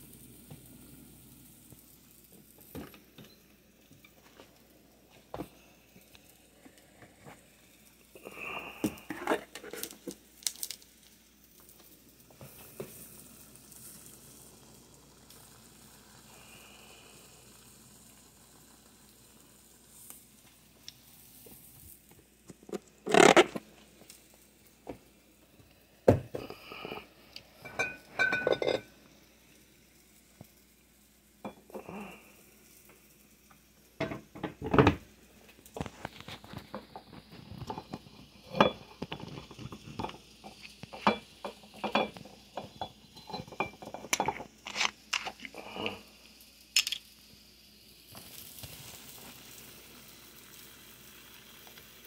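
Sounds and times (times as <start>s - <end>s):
dishes clattering on stone counter: 27.6s - 28.9s, 31.4s - 31.8s, 34.0s - 35.0s, 37.6s - 45.4s.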